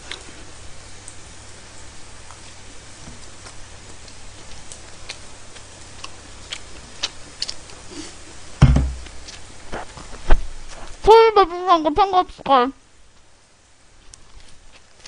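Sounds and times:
low steady hum: 0:00.0 - 0:15.0
chewing clicks: 0:03.4 - 0:07.8
dull thump on table: 0:08.6 - 0:09.0.

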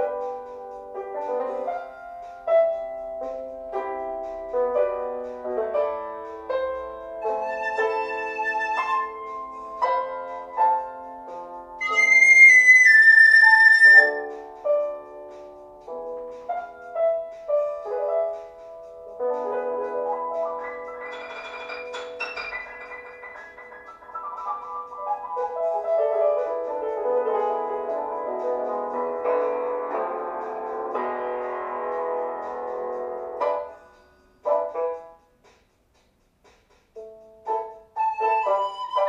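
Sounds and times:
piano notes: 0:00.0 - 0:35.5, 0:36.8 - 0:39.0
flute melody: 0:07.2 - 0:11.2, 0:11.8 - 0:14.7, 0:37.9 - 0:39.0.

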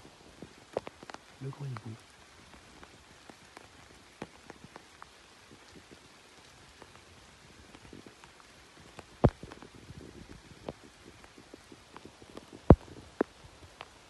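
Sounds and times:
light rain hiss: 0:00.0 - 0:14.0
raindrops ticking: 0:00.0 - 0:14.0.

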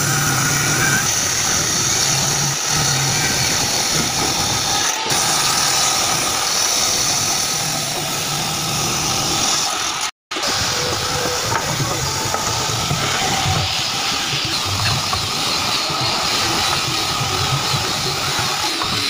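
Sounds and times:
table saw ripping log: 0:00.0 - 0:19.0.

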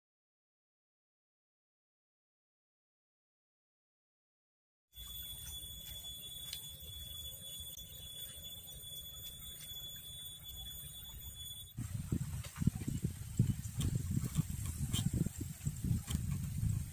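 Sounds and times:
high-pitched insect drone: 0:05.0 - 0:16.8
low wind rumble: 0:11.8 - 0:16.9.

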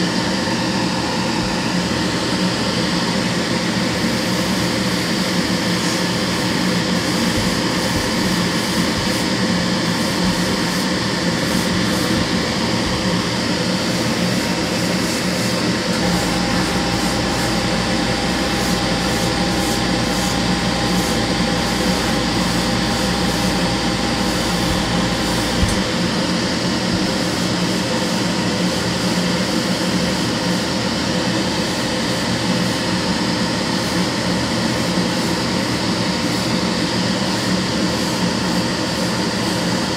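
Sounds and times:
deep hum with faint whine: 0:00.0 - 0:29.0
fan and compressor air rush: 0:00.0 - 0:39.9.

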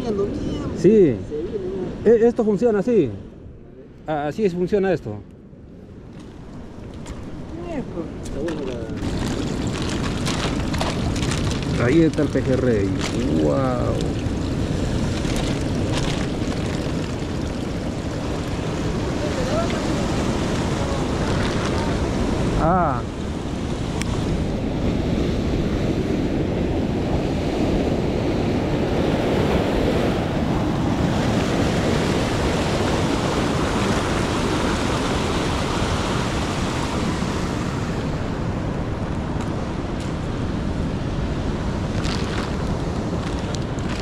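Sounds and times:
ocean surf breaking over rocks: 0:06.0 - 0:44.0.

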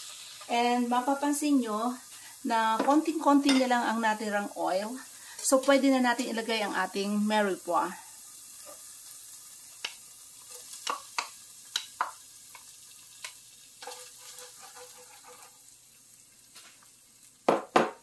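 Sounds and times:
vegetables sizzling in oil: 0:00.0 - 0:18.0
sharp pops and clicks: 0:10.9 - 0:13.4.

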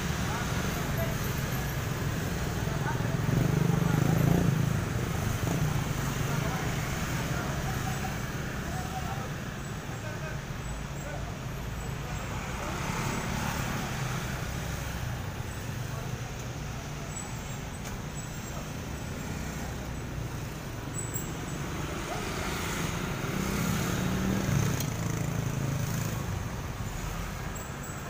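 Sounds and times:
road traffic rumble: 0:00.0 - 0:28.0
vehicle passing: 0:18.6 - 0:27.4.

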